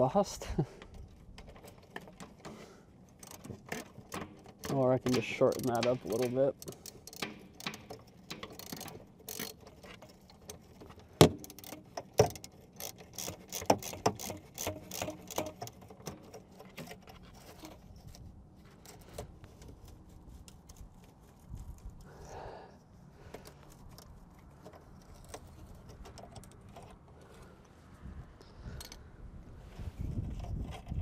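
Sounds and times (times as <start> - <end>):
metal tools clicking: 3.1 - 17.1.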